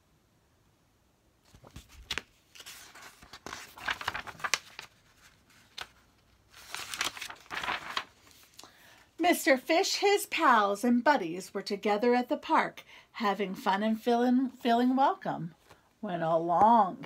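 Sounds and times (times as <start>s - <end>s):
paper pages rustling: 1.4s - 8.8s.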